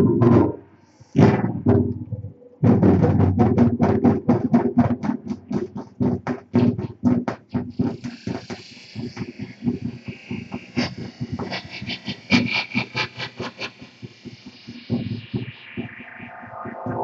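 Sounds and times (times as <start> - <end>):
hissing noise layer: 8.8 - 17.0.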